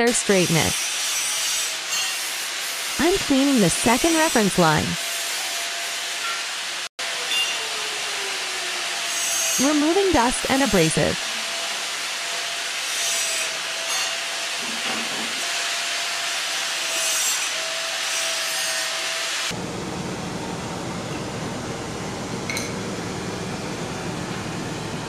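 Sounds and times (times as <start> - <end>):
steady whirring hum: 19.5 - 25.0.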